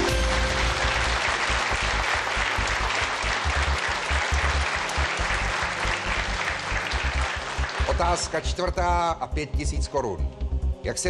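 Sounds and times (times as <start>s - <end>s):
audience applauding: 0.0s - 8.7s
low pulsing music beat: 0.0s - 11.0s.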